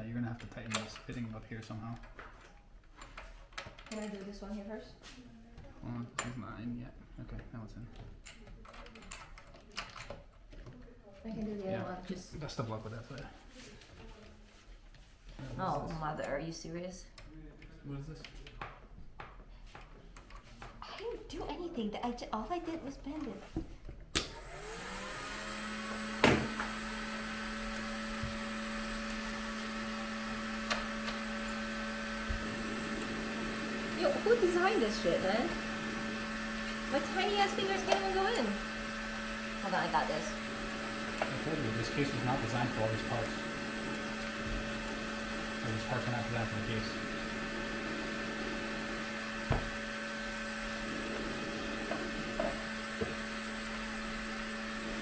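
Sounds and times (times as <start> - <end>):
heat gun fan humming: 24.1 - 55.0.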